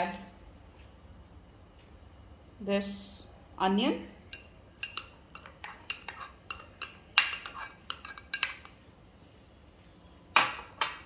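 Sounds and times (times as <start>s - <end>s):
spoon scraping ceramic plate: 4.3s - 8.8s.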